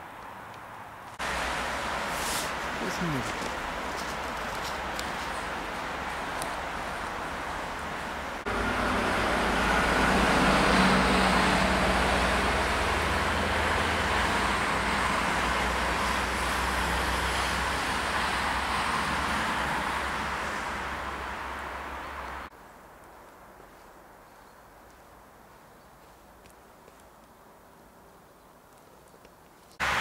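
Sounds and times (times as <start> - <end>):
vehicle passing by: 0.8 - 22.5, 29.8 - 30.0.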